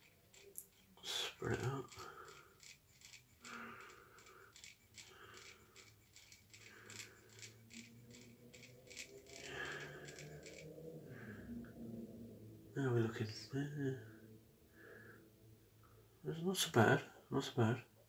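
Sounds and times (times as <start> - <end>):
comb scratching through hair: 0.0 - 10.7.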